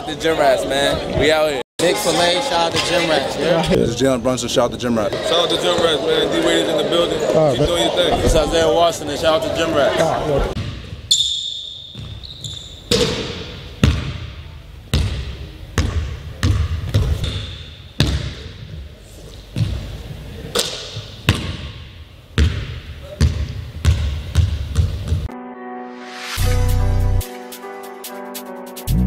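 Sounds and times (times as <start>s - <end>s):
basketball bouncing on gym floor: 11.9s - 14.3s, 14.9s - 18.8s, 20.6s - 21.8s, 22.4s - 25.3s.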